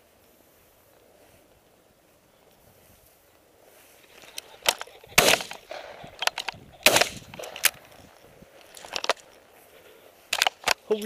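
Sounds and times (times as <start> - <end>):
sharp clicks: 4.2 - 9.4
shotgun shots with echo: 5.2 - 7.8.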